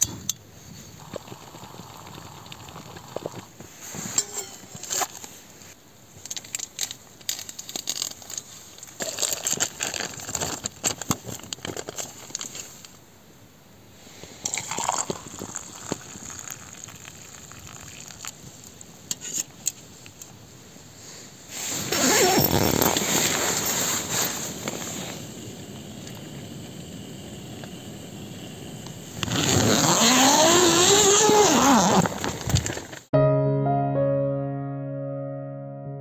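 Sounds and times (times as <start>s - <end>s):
nylon fabric rustling: 21.6s - 25.2s.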